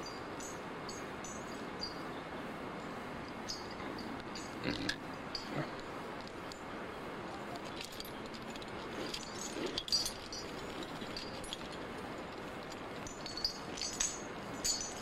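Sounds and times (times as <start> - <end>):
steady hiss: 0.0 - 15.0
climbing hardware clinking: 7.4 - 15.0.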